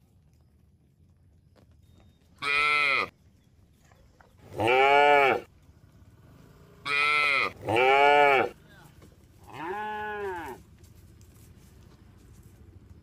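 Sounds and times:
cattle mooing: 4.5s - 5.5s, 6.8s - 8.6s, 9.5s - 10.6s.

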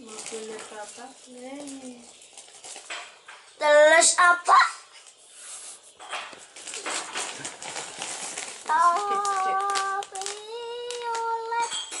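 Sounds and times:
plastic packet crinkling: 0.0s - 3.1s, 6.4s - 12.0s
child singing long notes: 8.7s - 12.0s.

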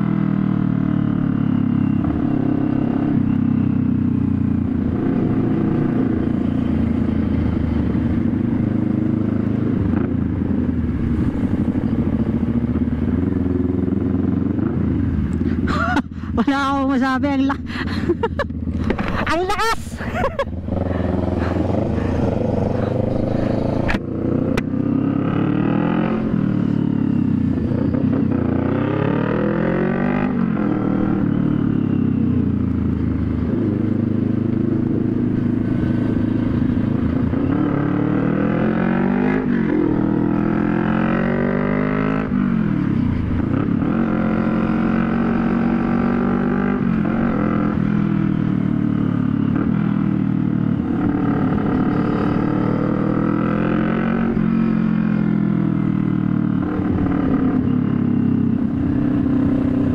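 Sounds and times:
motorcycle engine revving loudly: 20.6s - 31.8s, 33.5s - 42.6s, 50.8s - 59.9s.

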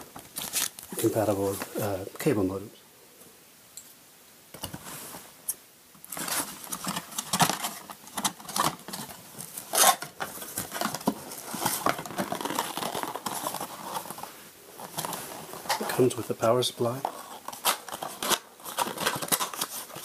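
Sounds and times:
cardboard scraping and rustling: 6.1s - 20.0s.

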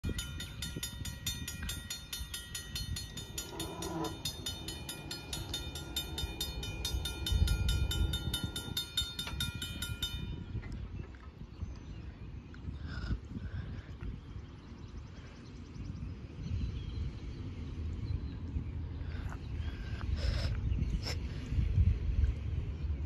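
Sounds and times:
crossing warning bell ringing: 0.0s - 10.8s
low rumbling noise: 0.0s - 23.0s.

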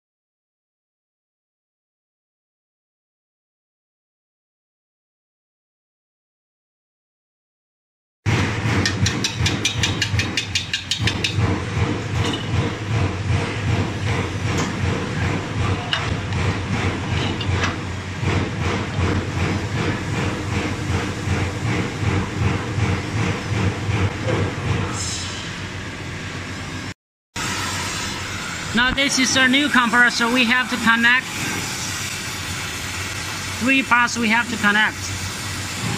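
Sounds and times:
machinery humming and clattering: 8.3s - 35.9s.

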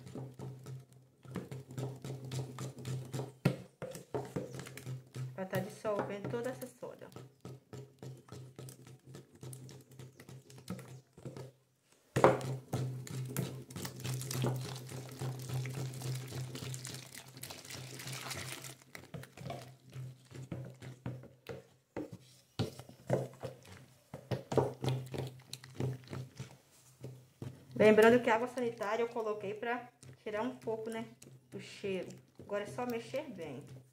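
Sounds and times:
wooden spoon scraping bucket: 0.0s - 33.9s
water pouring into plastic bucket: 12.6s - 20.4s.

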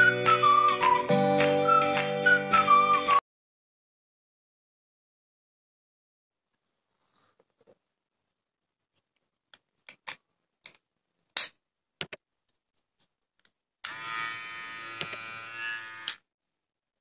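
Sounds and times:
hair trimmer buzzing: 13.8s - 16.2s.

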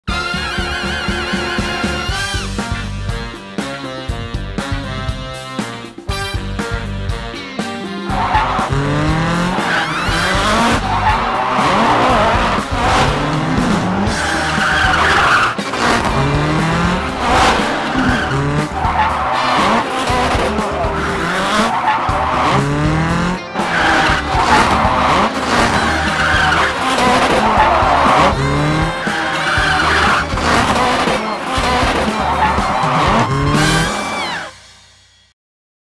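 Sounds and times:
music: 0.0s - 35.4s
toy car electric motor whining: 25.4s - 34.6s.

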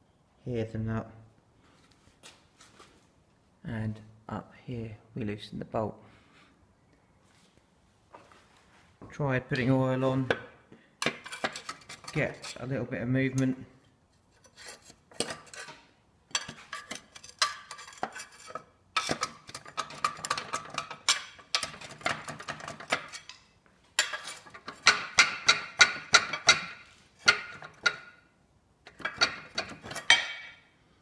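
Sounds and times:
metallic clanks and knocks: 16.3s - 23.4s, 24.0s - 28.2s, 28.9s - 30.6s.

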